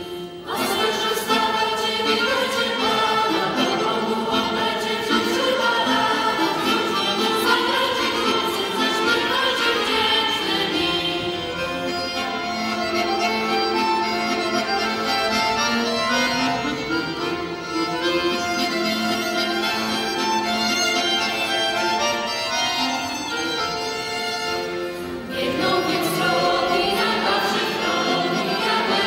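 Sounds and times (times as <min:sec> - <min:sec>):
accordion and fiddle folk music: 0:00.0 - 0:29.0
group singing: 0:00.4 - 0:11.3, 0:25.2 - 0:29.0.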